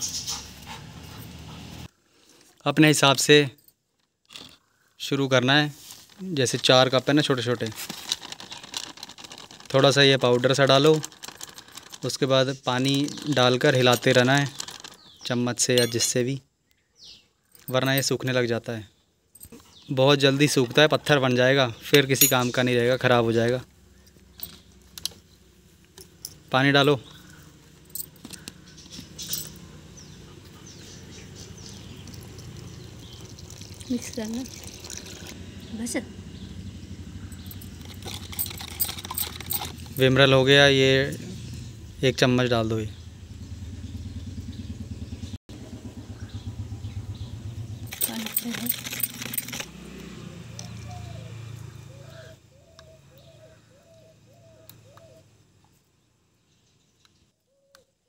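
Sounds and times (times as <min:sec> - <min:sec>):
metal spoon rattling in plastic cup: 0:06.5 - 0:16.2, 0:32.0 - 0:35.3, 0:37.4 - 0:40.2, 0:47.9 - 0:49.7
bird calling: 0:27.0 - 0:33.7, 0:50.5 - 0:55.4
water pouring onto powder: 0:31.8 - 0:35.4.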